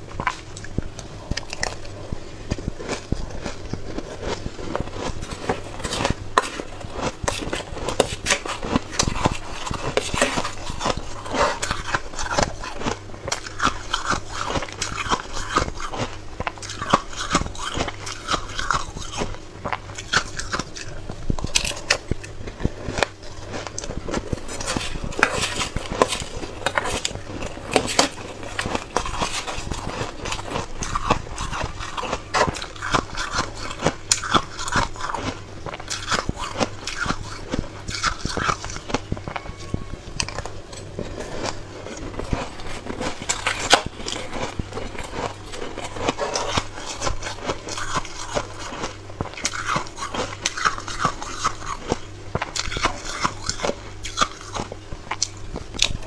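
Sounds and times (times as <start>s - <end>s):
crunching ice close up: 2.5s - 19.4s, 40.2s - 54.6s.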